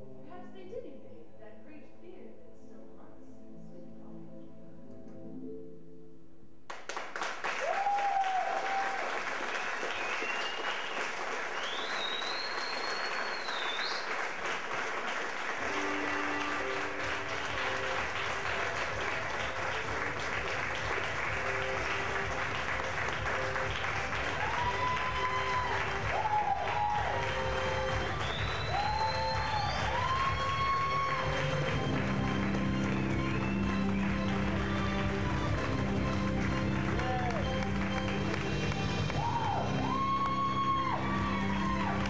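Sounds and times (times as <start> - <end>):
music with sustained notes: 0.0 - 6.7, 15.5 - 42.0
audience applauding: 6.7 - 42.0
whistles and cheers: 7.5 - 14.2, 24.1 - 31.7, 39.1 - 42.0.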